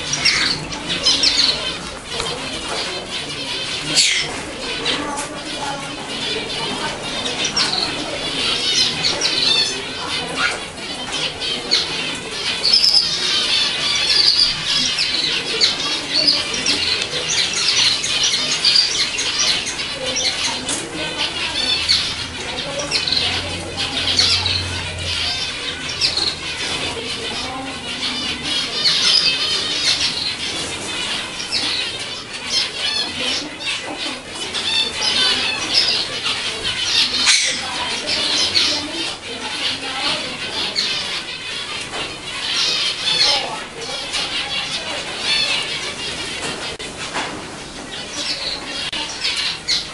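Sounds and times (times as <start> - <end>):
finches chattering: 0.0 - 49.9.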